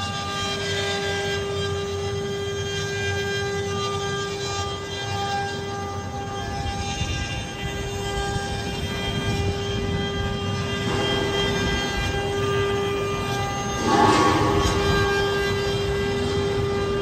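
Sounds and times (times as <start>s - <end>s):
router spindles high whine: 0.0s - 17.0s
rough machine noise: 9.6s - 17.0s.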